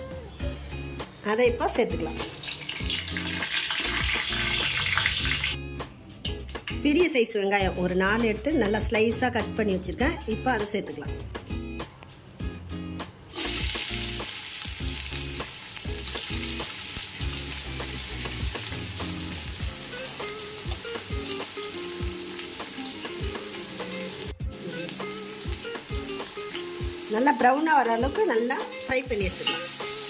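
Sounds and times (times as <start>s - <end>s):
onions sizzling in hot oil: 1.1s - 5.6s, 13.3s - 30.0s.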